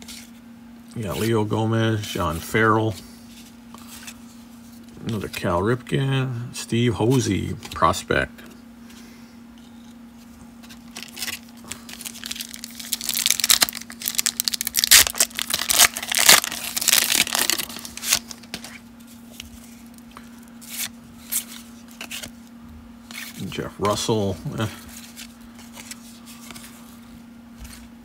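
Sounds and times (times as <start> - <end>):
foil wrapper crinkling and tearing: 10.6 - 22.4.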